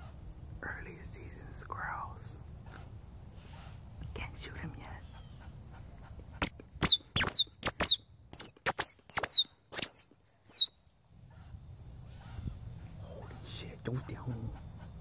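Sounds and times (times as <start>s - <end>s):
squirrel call chirps: 6.4s - 10.7s.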